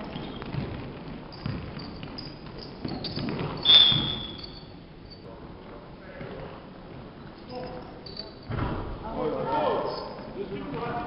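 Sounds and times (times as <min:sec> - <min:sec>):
shoe squeaks: 0:00.0 - 0:00.7, 0:01.3 - 0:05.3, 0:07.2 - 0:08.5, 0:09.8 - 0:10.4
basketball bouncing: 0:00.0 - 0:04.5
footsteps thudding on court floor: 0:00.1 - 0:04.4
referee's whistle: 0:03.6 - 0:04.7.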